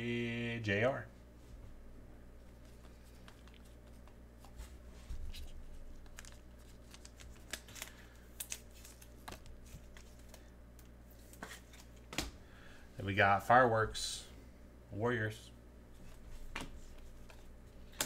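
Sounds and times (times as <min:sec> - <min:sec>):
steady low hum: 0:00.0 - 0:18.0
trading cards being handled: 0:02.4 - 0:12.3, 0:15.9 - 0:18.0.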